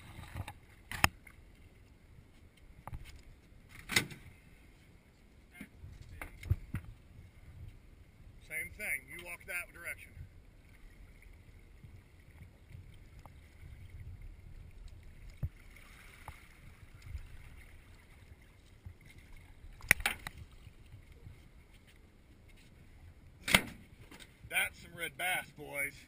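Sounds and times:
low wind rumble: 0:03.5 - 0:15.7
water sloshing: 0:10.5 - 0:24.4.

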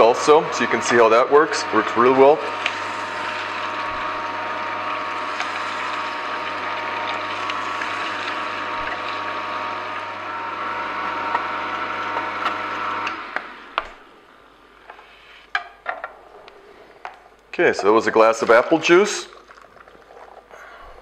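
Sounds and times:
juicer motor hum: 0:00.0 - 0:14.9.

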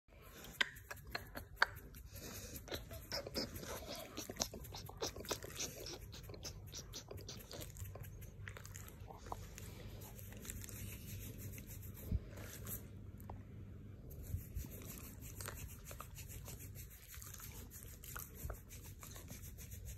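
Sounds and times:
hand scratching dog fur: 0:00.3 - 0:12.9, 0:14.1 - 0:19.9.

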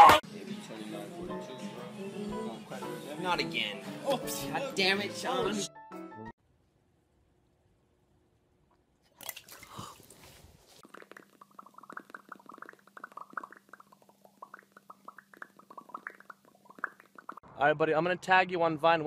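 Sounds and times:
wet clicking mouth noises: 0:10.8 - 0:17.4.

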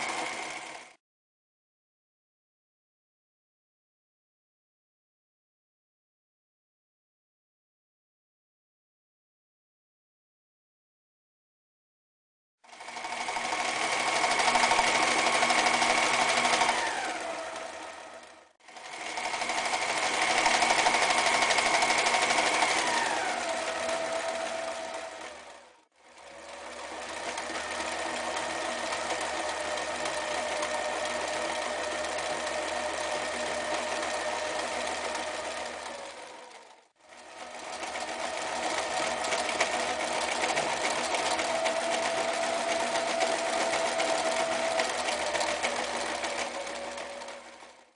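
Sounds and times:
sewing machine stitching: 0:00.0 - 0:01.0, 0:12.6 - 0:47.9.

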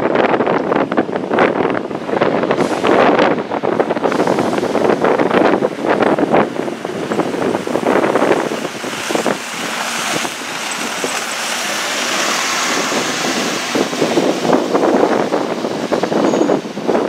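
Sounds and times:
bus driving past on slush: 0:06.6 - 0:16.1.

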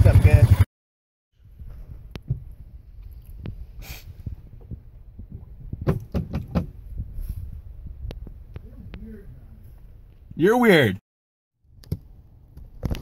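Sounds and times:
squeegee knocking on windshield: 0:05.8 - 0:06.8
low rumble: 0:06.7 - 0:10.3.

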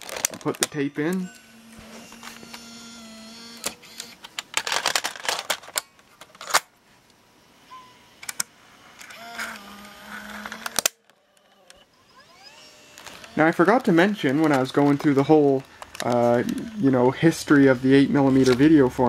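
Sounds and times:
plastic cassette compartment clacks: 0:00.0 - 0:01.3, 0:03.6 - 0:06.7, 0:13.0 - 0:16.7
loading mechanism whir: 0:00.0 - 0:06.8, 0:07.8 - 0:18.8.

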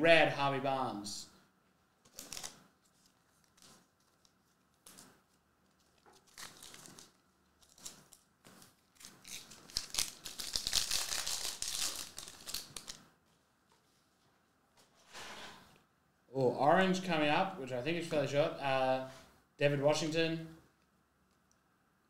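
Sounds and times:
foil pack crinkling: 0:02.0 - 0:13.0.

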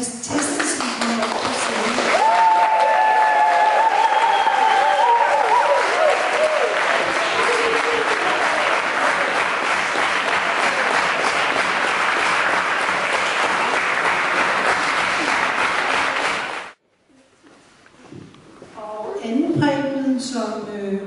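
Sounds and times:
audience applauding: 0:00.4 - 0:16.8.

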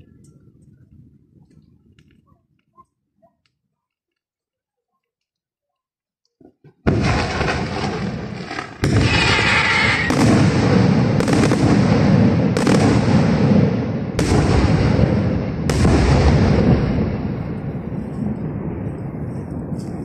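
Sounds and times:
continuous firework din: 0:06.4 - 0:20.0
firework shells bursting: 0:06.6 - 0:11.9.

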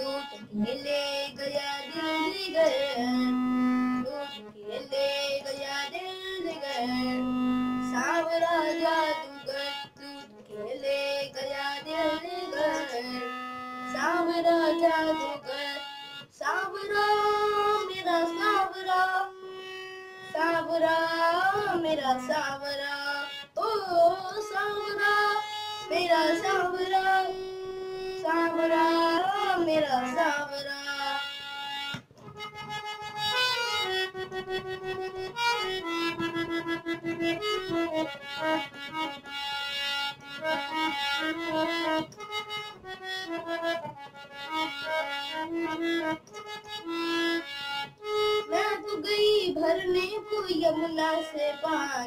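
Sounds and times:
child singing: 0:00.0 - 0:03.4, 0:04.0 - 0:19.5, 0:20.2 - 0:31.3, 0:48.4 - 0:52.0
harmonium: 0:00.0 - 0:52.0.

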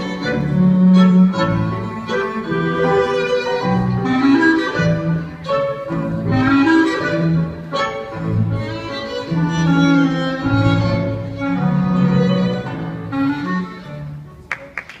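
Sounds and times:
waltz music: 0:00.0 - 0:15.0.

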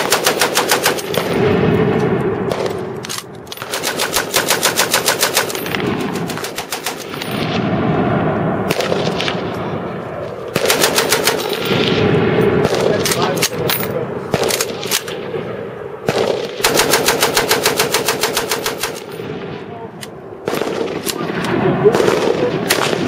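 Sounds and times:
machine gun firing bursts: 0:00.0 - 0:01.6, 0:03.6 - 0:07.5, 0:10.5 - 0:11.9, 0:12.6 - 0:13.4, 0:14.3 - 0:15.1, 0:16.0 - 0:19.2, 0:20.4 - 0:23.0
low continuous din: 0:00.0 - 0:23.0.

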